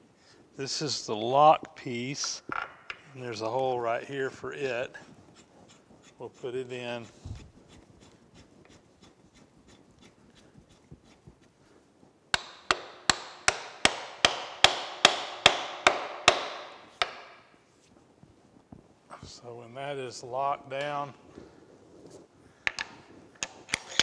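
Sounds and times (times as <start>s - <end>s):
hammer rapping steel handle: 12.4s - 17.5s.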